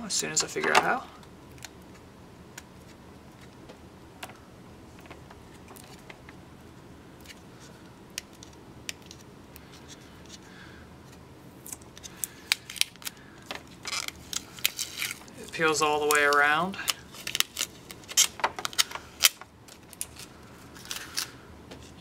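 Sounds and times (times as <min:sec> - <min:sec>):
plastic film peeling and crackling: 0:11.1 - 0:21.4.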